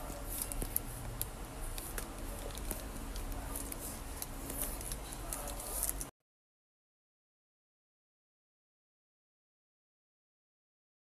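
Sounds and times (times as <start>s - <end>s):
low steady hum: 0.0s - 6.1s
plastic wrapping crinkling: 0.0s - 6.1s.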